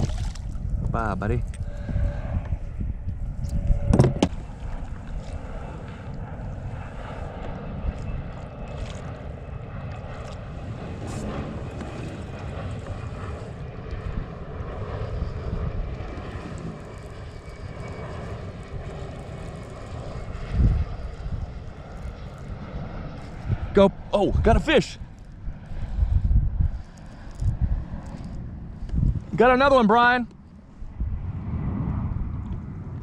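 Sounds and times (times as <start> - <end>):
propeller airplane droning: 0.0 - 33.0.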